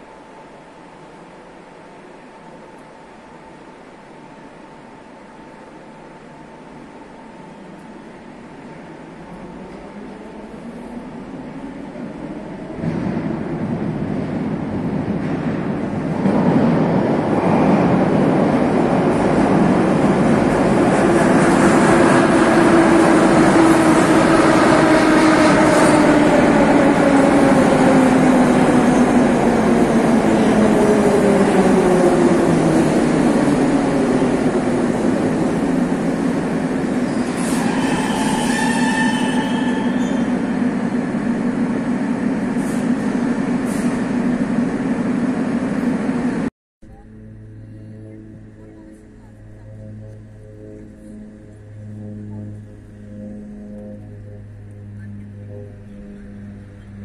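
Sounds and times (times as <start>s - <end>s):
metro train rolling rumble: 0.0s - 57.0s
train brake squeal: 37.1s - 40.4s.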